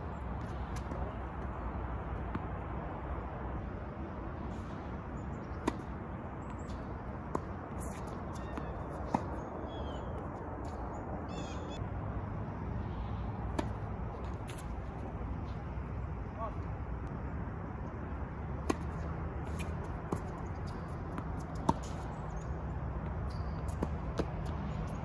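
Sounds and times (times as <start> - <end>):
tennis ball hits: 5.5 - 6.0, 13.5 - 14.8
birds chirping: 8.1 - 10.2, 10.8 - 11.8.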